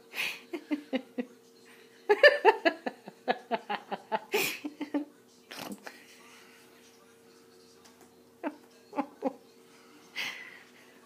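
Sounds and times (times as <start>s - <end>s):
faint hum: 0.0s - 11.0s
person giggling: 0.2s - 1.3s, 2.1s - 5.1s, 8.4s - 9.4s.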